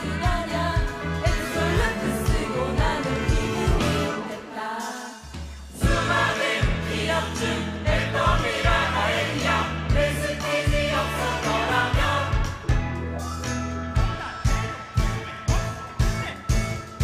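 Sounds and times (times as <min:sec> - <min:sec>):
group singing: 0:00.0 - 0:12.8
pop backing track with drums: 0:00.0 - 0:17.0.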